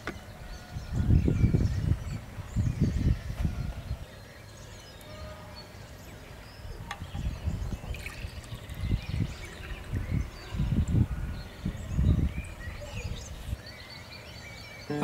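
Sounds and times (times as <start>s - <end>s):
wind rumbling on microphone: 0.0s - 4.2s, 6.4s - 13.8s.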